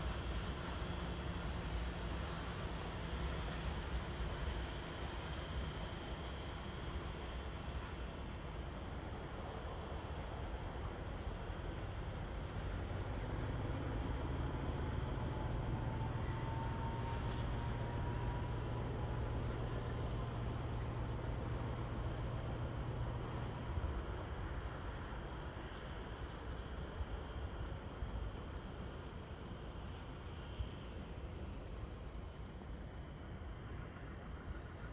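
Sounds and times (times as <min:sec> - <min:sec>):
locomotive engine drone: 0:00.0 - 0:34.9.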